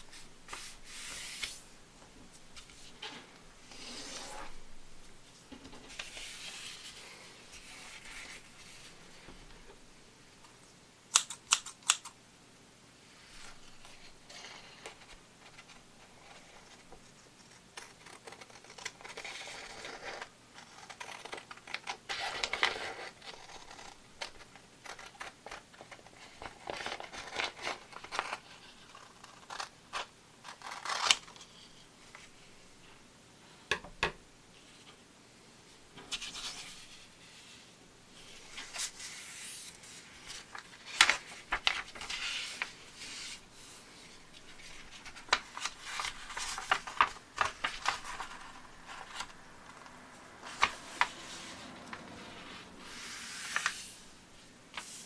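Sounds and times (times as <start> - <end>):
paper rustling: 0.0 - 1.6, 5.7 - 9.4, 38.2 - 54.0.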